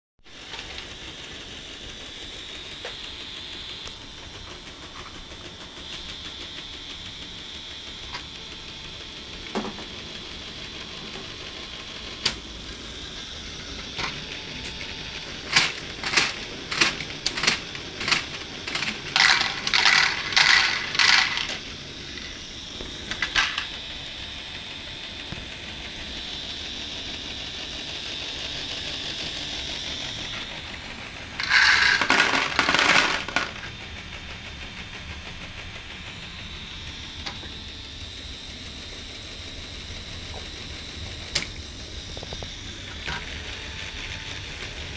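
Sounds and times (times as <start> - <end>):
toy motor and gears whining: 0.4 - 44.9
plastic balls clattering: 15.5 - 21.6, 31.4 - 33.7.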